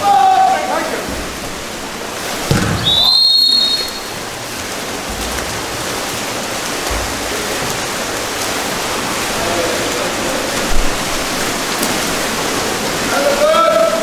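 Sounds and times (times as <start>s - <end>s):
pool water splashing: 0.0s - 14.0s
referee's whistle blast: 2.6s - 4.2s.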